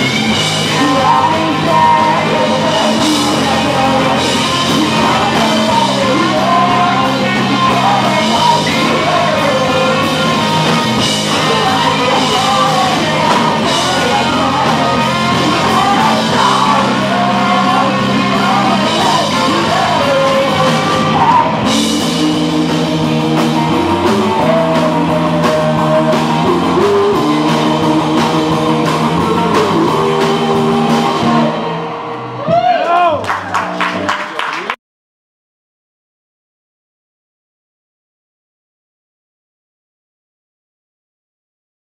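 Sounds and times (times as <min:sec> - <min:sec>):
lead vocals singing: 0:00.0 - 0:31.9
rock band playing: 0:00.0 - 0:34.8.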